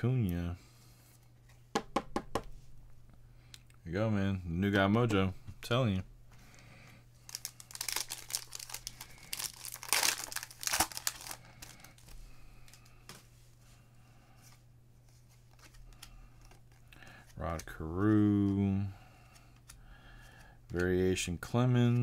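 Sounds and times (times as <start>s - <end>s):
steady low hum: 2.4s - 22.0s
card wrappers tearing and crinkling: 7.2s - 12.1s.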